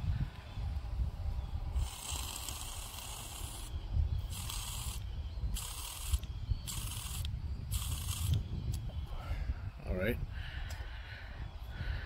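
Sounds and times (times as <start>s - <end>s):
air hissing through carburetor: 1.7s - 8.9s.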